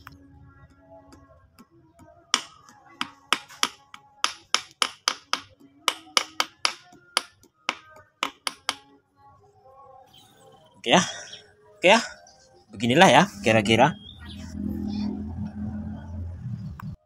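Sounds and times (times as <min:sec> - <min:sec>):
hammer tapping metal: 0:02.4 - 0:08.8.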